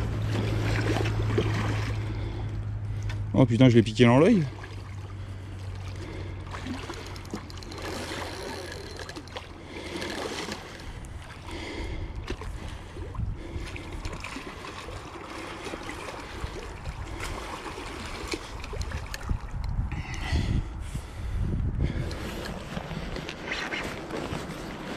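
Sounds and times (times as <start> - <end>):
fish splashing in water: 0.0 - 3.0, 4.3 - 19.6.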